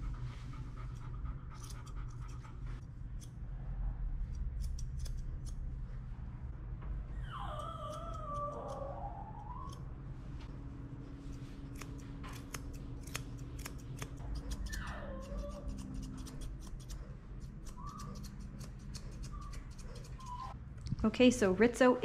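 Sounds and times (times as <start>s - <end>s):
shears snipping hair: 4.2s - 5.6s, 11.1s - 20.6s.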